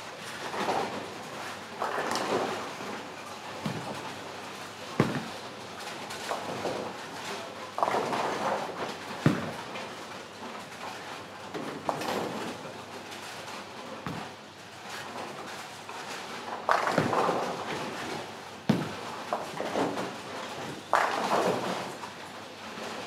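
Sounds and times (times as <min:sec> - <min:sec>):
bowling balls rolling: 0:00.2 - 0:07.2, 0:07.8 - 0:09.7, 0:16.1 - 0:22.1.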